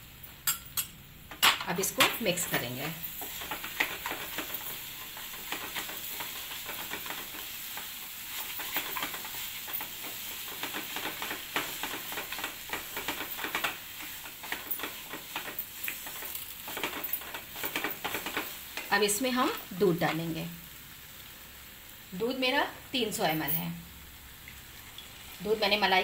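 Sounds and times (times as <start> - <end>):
food sizzling in oil: 1.1 - 26.0
spatula scraping a pan: 2.9 - 18.9.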